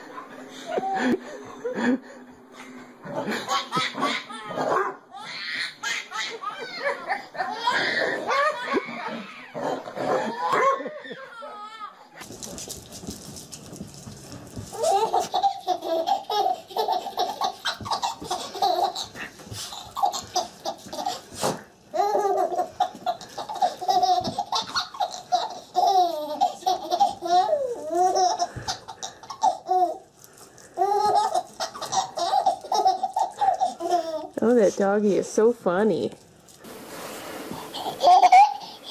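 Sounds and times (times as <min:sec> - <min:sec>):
baby laughing: 0:03.2 - 0:11.9, 0:14.7 - 0:30.1, 0:30.8 - 0:34.4, 0:37.5 - 0:38.9.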